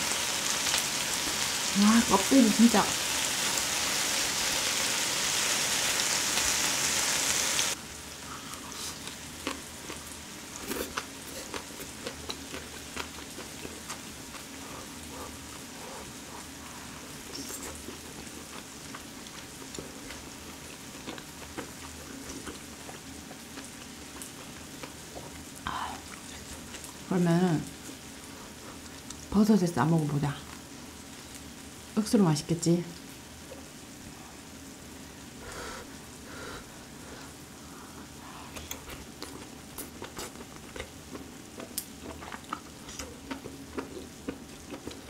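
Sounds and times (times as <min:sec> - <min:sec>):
meat sizzling on a grill plate: 0:00.0 - 0:07.8
chewing clicks and smacks: 0:10.9 - 0:14.5, 0:38.6 - 0:45.0.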